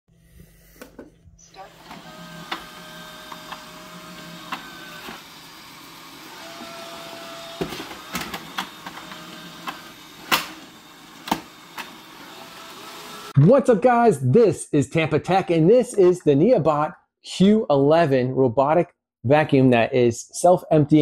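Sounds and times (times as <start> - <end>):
robot vacuum motor whirr: 1.4 - 13.4.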